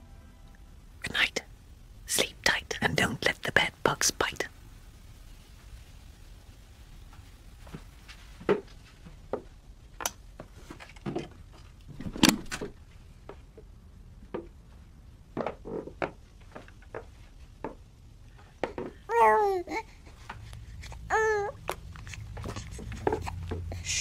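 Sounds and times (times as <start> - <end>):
low steady hum: 0.0 - 24.0
soft knocks and taps: 15.4 - 19.0.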